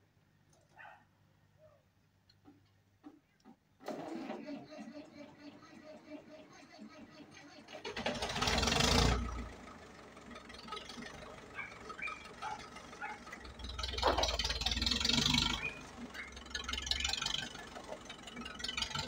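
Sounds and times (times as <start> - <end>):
tractor engine rumbling: 2.1 - 19.0.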